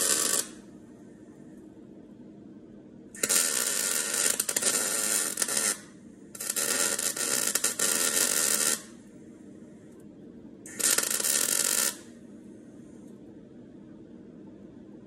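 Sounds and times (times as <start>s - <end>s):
crackling welding arc: 0.0s - 0.6s, 3.2s - 9.0s, 10.7s - 12.1s.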